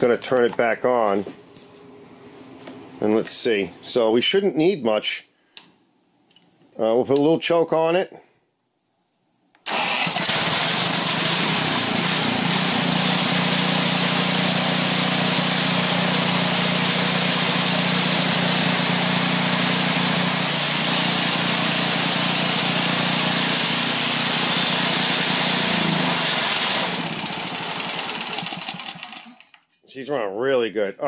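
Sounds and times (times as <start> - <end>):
snowblower engine running: 9.7 - 29.6.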